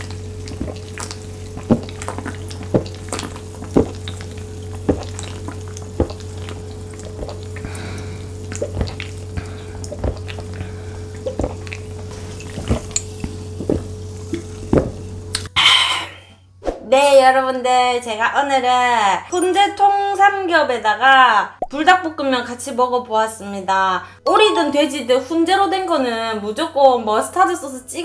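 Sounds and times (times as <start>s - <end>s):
person gulping drink: 0.0s - 15.7s
steady low hum: 0.0s - 16.6s.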